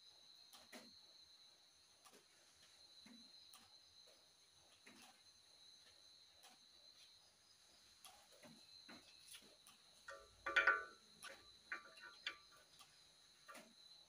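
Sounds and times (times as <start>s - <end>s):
metallic ticks of small parts: 8.0s - 14.0s.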